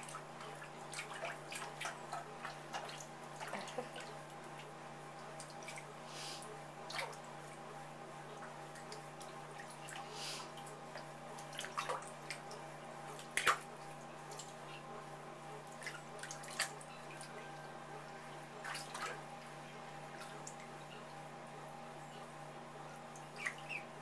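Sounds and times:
ducklings splashing in water: 0.0 - 6.0, 8.3 - 14.8, 15.6 - 21.2, 23.0 - 24.0
steady low hum: 0.0 - 24.0.

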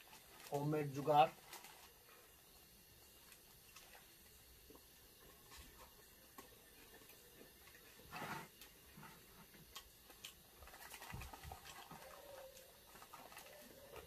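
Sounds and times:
paper wrappers crinkling: 0.0 - 2.2, 10.1 - 14.0
faint chewing: 3.2 - 14.0.

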